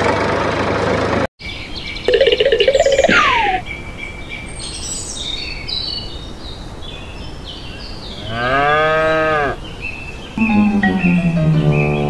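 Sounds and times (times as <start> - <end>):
birds chirping: 1.4 - 12.0
cow mooing: 8.2 - 9.6.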